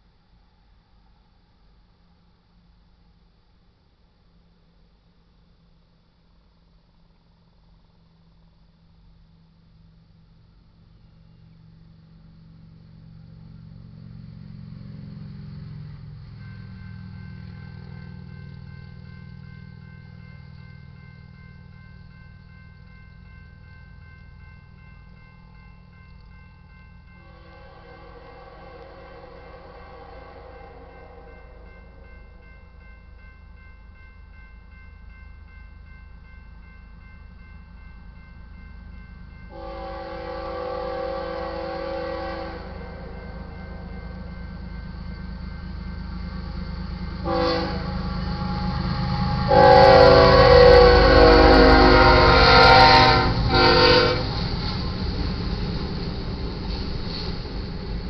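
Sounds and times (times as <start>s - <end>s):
diesel locomotives droning: 0.0s - 58.0s
low train rumble: 0.0s - 58.0s
railroad crossing bell ringing: 11.0s - 58.0s
train horn: 27.2s - 32.4s, 39.5s - 44.4s, 47.2s - 54.4s.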